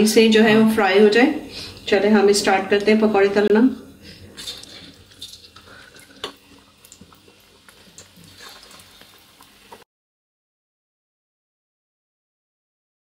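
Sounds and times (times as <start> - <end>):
frying in hot oil: 0.0 - 9.9.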